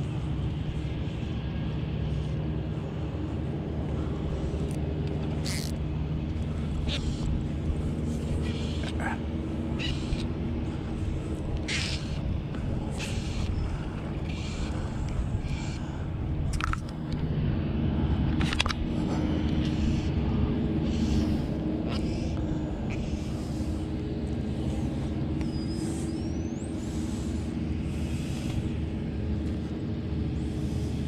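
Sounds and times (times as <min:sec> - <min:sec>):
distant engine drone: 0:00.0 - 0:31.0.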